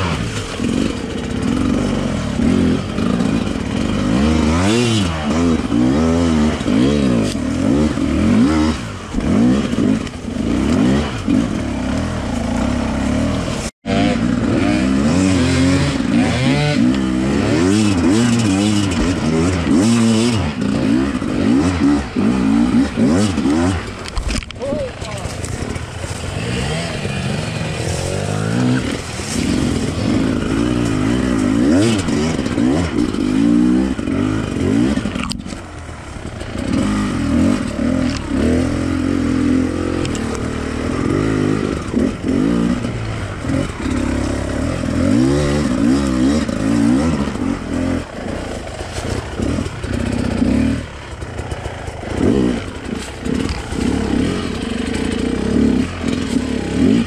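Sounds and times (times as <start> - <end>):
motorcycle engine revving: 0.0 - 57.0
clattering over rough ground: 0.1 - 57.0.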